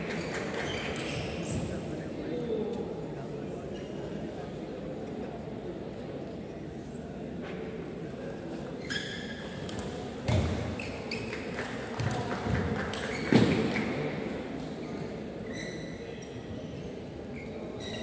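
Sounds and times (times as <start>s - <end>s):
short high squeaks: 15.5s - 16.1s, 17.4s - 18.0s.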